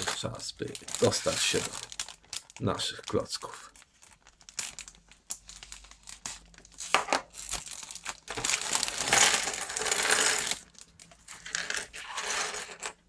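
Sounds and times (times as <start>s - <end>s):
plastic bag crinkling and tearing: 0.0s - 12.8s
plastic bricks clattering onto table: 9.0s - 10.6s, 11.3s - 13.0s.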